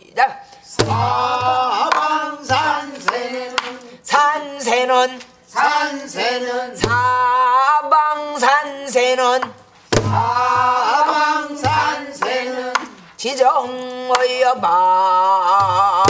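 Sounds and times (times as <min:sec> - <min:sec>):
person singing: 0:00.7 - 0:09.6, 0:10.2 - 0:16.0
barrel drum strikes: 0:00.8 - 0:02.7, 0:06.8 - 0:07.2, 0:09.9 - 0:11.0, 0:11.6 - 0:13.0.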